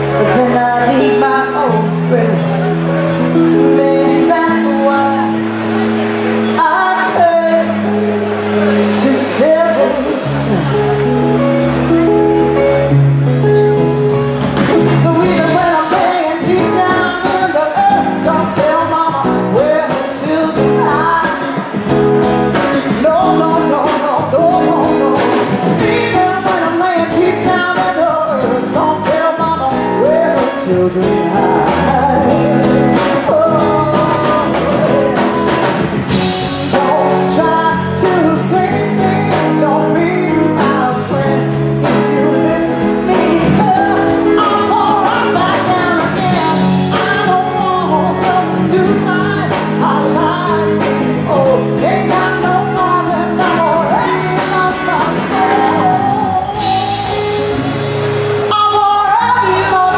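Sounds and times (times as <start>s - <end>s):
woman singing: 0.0s - 12.8s, 14.6s - 59.9s
blues-rock band playing: 0.0s - 59.9s.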